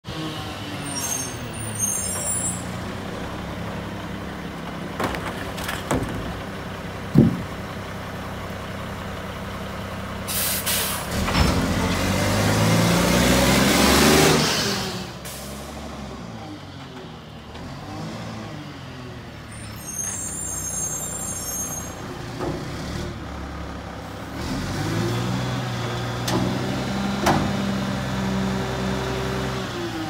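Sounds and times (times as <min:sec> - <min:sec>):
garbage truck engine idling: 0:02.6 - 0:10.3
plastic bin knocking against metal: 0:07.2 - 0:07.5
air brakes hissing: 0:10.3 - 0:11.1, 0:15.2 - 0:15.7, 0:19.6 - 0:22.1
truck engine revving: 0:10.4 - 0:16.6, 0:21.3 - 0:30.0.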